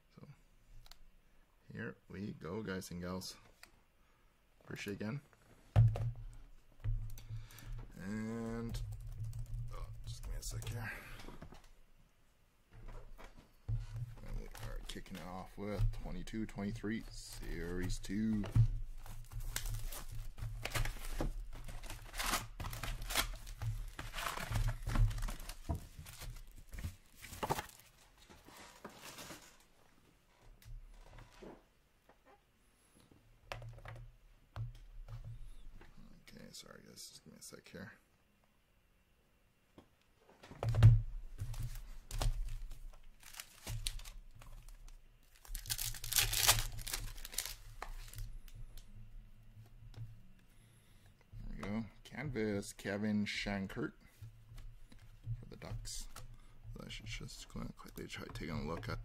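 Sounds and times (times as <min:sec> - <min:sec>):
foil packs crinkling and rustling: 0:14.1 - 0:29.7, 0:41.5 - 0:48.8
card pack being torn open: 0:43.2 - 0:44.2, 0:45.3 - 0:48.2.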